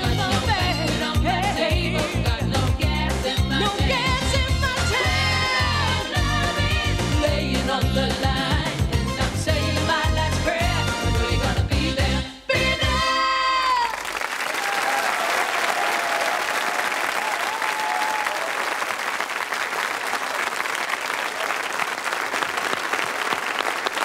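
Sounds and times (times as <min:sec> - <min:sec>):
audience applauding: 0:13.7 - 0:24.0.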